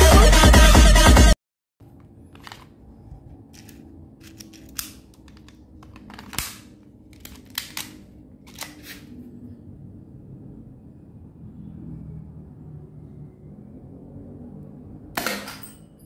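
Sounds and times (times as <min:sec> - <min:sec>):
toy pistol slide clicks and snaps: 0:03.6 - 0:05.6, 0:06.3 - 0:09.1.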